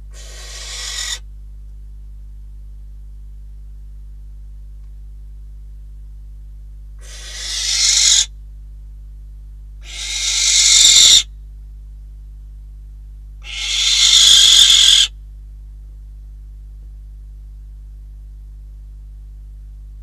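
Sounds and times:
low electrical hum: 0:00.0 - 0:20.0
barn owl screeching: 0:00.1 - 0:01.2, 0:07.0 - 0:08.3, 0:09.8 - 0:11.3, 0:13.4 - 0:15.1.

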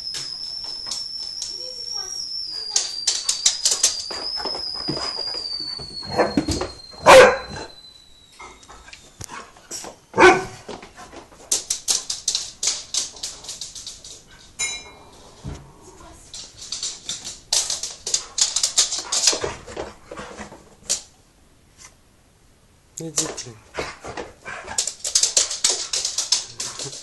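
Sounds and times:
paws pattering and scuffling: 0:03.2 - 0:07.7, 0:08.6 - 0:14.6, 0:16.2 - 0:21.1, 0:23.3 - 0:27.0
dog barking: 0:07.0 - 0:07.7, 0:10.2 - 0:10.6.

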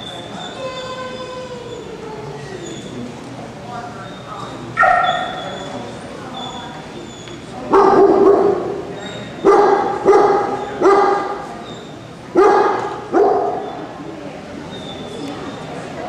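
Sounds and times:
dog barking with hall echo: 0:04.8 - 0:05.6, 0:07.7 - 0:11.4, 0:12.3 - 0:13.8.

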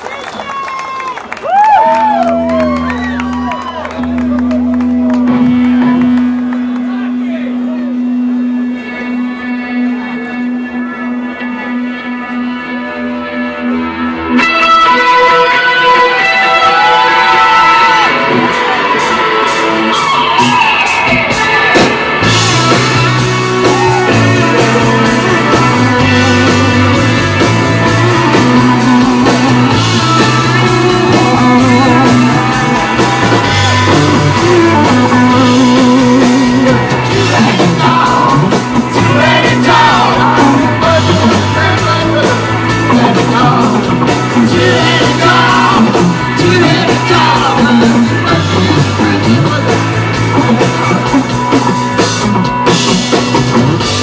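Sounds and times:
rock band playing: 0:00.0 - 0:54.0
person singing: 0:21.3 - 0:51.6.

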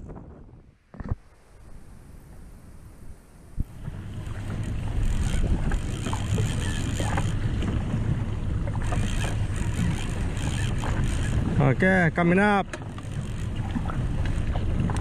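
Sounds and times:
water and wind rushing: 0:00.0 - 0:15.0.

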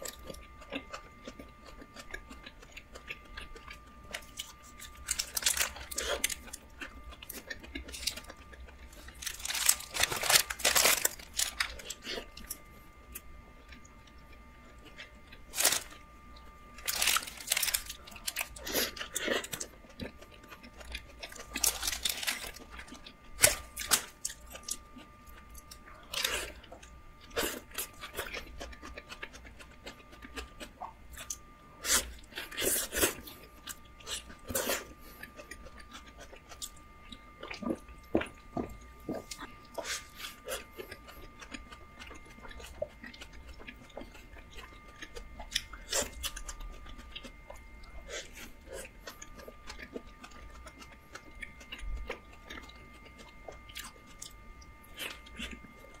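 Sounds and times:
lettuce crunching: 0:00.0 - 0:16.1, 0:16.7 - 0:36.7
person chewing: 0:00.0 - 0:56.0.

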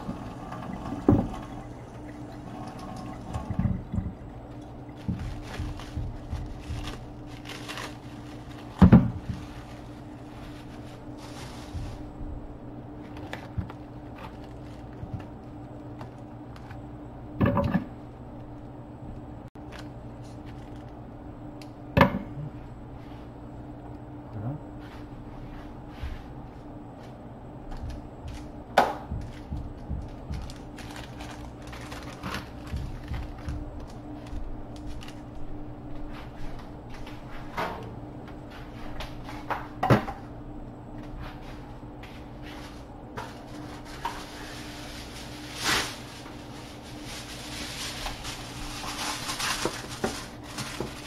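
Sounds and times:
plastic package being opened: 0:05.0 - 0:12.0, 0:19.6 - 0:21.0, 0:30.2 - 0:35.4, 0:43.4 - 0:51.0.

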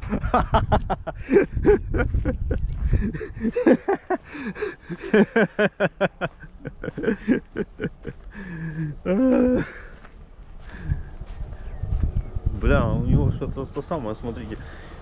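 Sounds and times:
man chuckling: 0:00.0 - 0:10.1.

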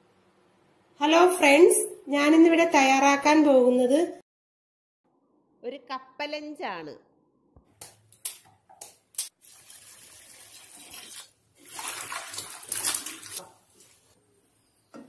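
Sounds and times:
water sloshing and splashing: 0:09.4 - 0:14.2.

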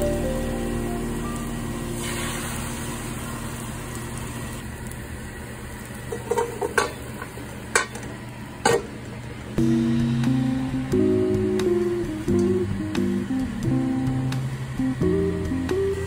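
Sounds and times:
eggs sizzling in frying pan: 0:00.0 - 0:08.6.

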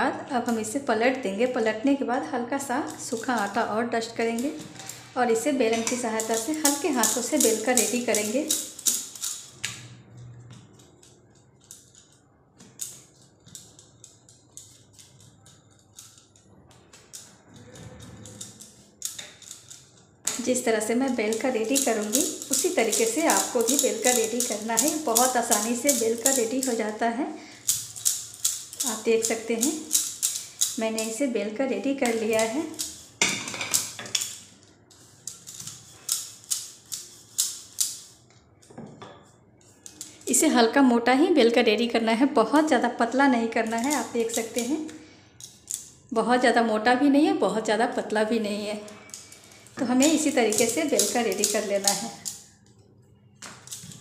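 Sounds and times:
rolling pin clicking on stone counter: 0:05.7 - 0:27.0, 0:48.9 - 0:52.5.

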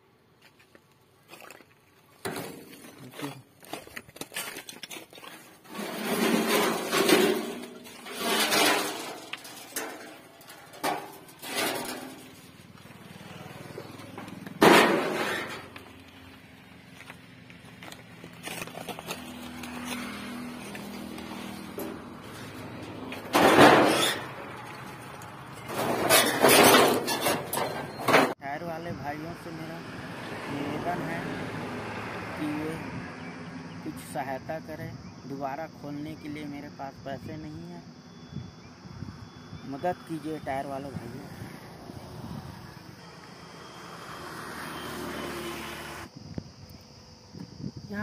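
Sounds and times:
debris crunching underfoot: 0:00.4 - 0:28.2.

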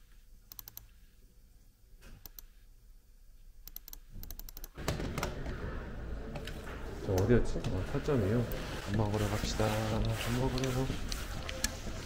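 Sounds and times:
keyboard typing: 0:00.5 - 0:01.0, 0:03.6 - 0:05.6, 0:10.0 - 0:12.0.

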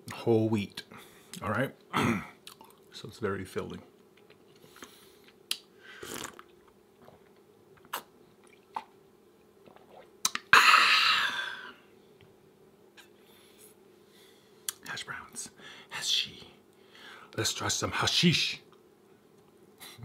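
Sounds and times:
close-miked chewing: 0:02.4 - 0:02.9
wet mouth clicks: 0:04.2 - 0:07.2, 0:07.8 - 0:08.9, 0:09.7 - 0:10.5.

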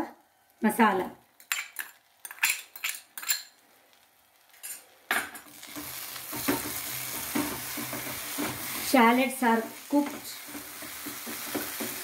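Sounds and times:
food sizzling in frying pan: 0:00.7 - 0:12.0
spatula scraping pan: 0:05.6 - 0:12.0.

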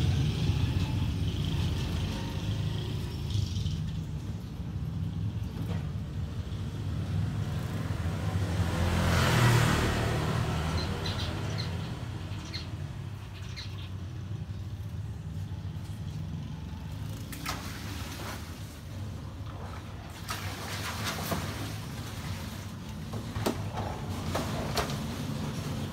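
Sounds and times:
low traffic rumble: 0:00.0 - 0:25.9
vehicle passing by: 0:00.0 - 0:25.9
small birds chirping: 0:10.4 - 0:17.2.

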